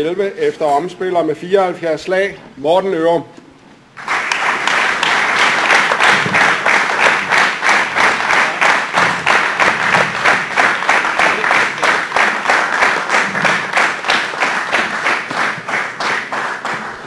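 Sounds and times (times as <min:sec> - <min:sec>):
audience applauding: 0:04.0 - 0:17.0.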